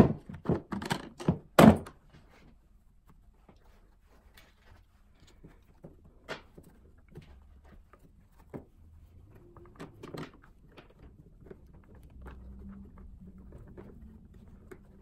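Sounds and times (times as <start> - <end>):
soft rustling: 2.0 - 15.0.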